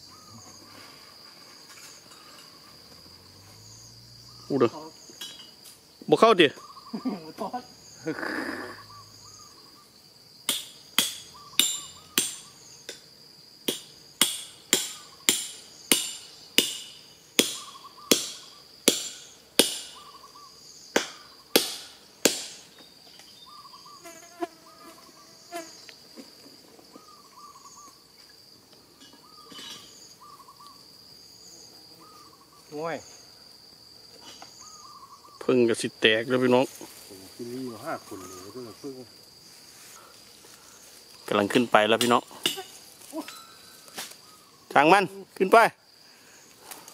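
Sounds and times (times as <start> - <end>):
high insect trill: 0.0 - 46.9.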